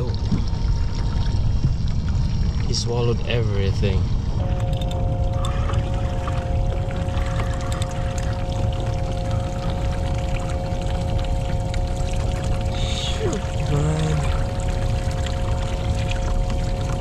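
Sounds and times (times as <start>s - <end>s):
two-note hum: 4.4s - 17.0s.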